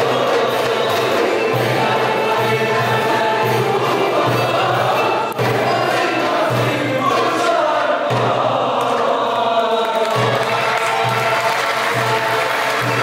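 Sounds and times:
violins and zither ensemble: 0.0s - 8.5s
mixed choir singing: 0.0s - 13.0s.

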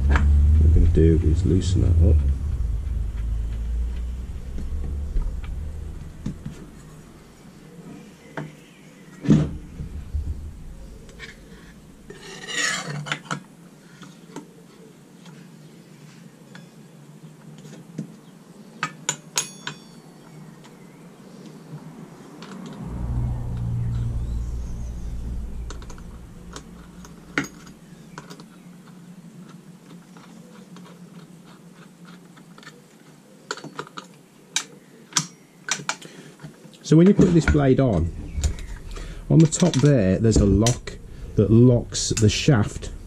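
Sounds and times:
rattling metal scrape: 0.0s - 7.7s, 9.4s - 12.8s, 37.6s - 43.0s.

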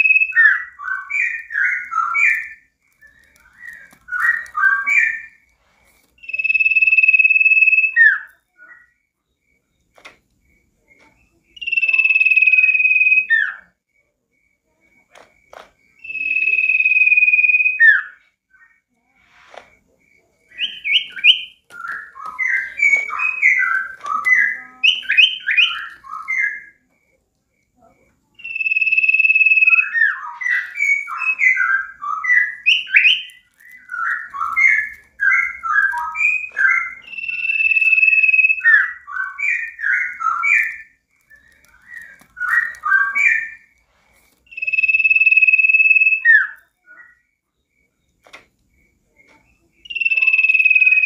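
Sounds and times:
bird high whistle: 0.0s - 5.4s, 6.2s - 9.0s, 11.6s - 13.7s, 16.0s - 18.8s, 20.5s - 26.8s, 28.4s - 43.7s, 44.5s - 47.3s, 49.8s - 51.0s
songbird warbling: 20.4s - 26.8s, 28.4s - 43.7s, 44.5s - 47.2s, 49.8s - 51.0s.

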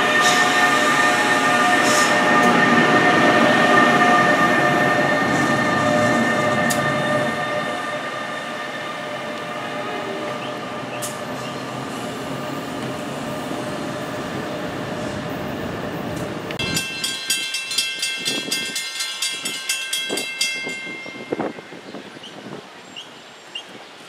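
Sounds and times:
electric locomotive rumble and whine: 0.0s - 22.8s
grade-crossing bell ringing: 16.6s - 22.1s.

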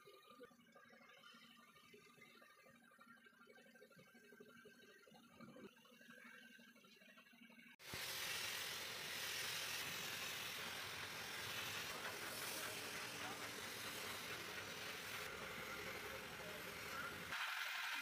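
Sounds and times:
spray paint gun hissing: 7.8s - 18.0s.

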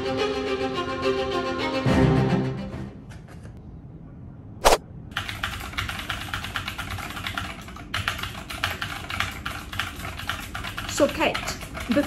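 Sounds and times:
loud sharp snap: 4.6s - 4.8s
rapid laptop keyboard typing: 5.1s - 12.0s.

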